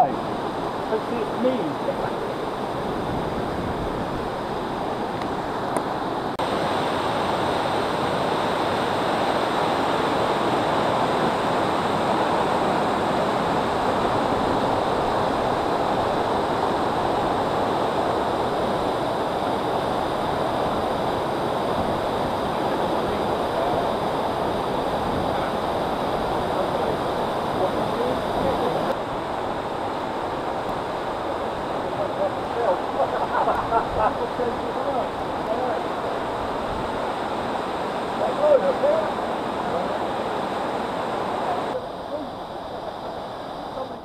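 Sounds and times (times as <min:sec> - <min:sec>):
waterfall rushing over rocks: 0:00.0 - 0:44.0.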